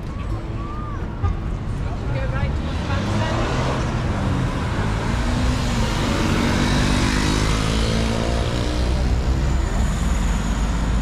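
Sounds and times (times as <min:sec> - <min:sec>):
low rumble of road noise: 0:00.0 - 0:11.0
vehicle engine passing close: 0:02.4 - 0:11.0.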